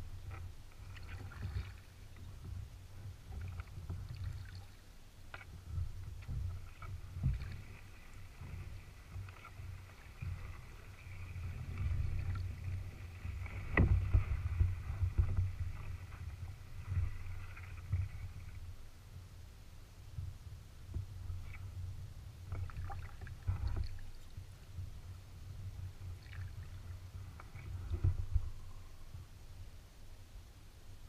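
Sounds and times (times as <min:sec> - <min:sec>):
paddle knocking against hull: 0:05.3 - 0:18.7.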